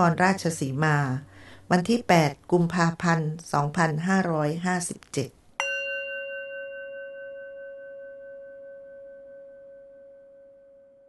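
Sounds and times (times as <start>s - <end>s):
struck bell ringing: 5.6s - 9.9s.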